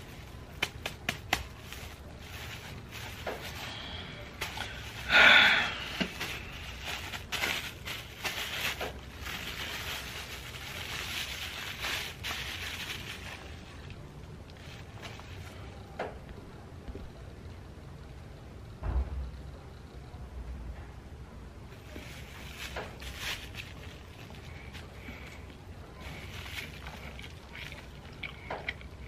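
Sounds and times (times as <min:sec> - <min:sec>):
plastic bag rustling and crinkling: 0:00.0 - 0:15.8, 0:21.7 - 0:29.0.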